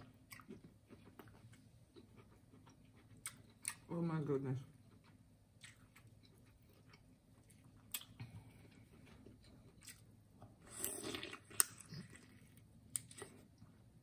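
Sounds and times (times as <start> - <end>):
wet eating clicks and smacks: 4.9 - 8.3.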